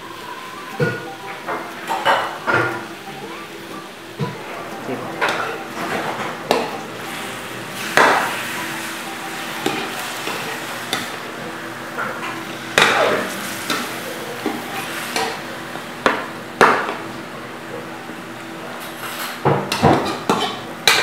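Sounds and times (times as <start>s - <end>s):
meat sizzling in oil: 6.4s - 17.5s.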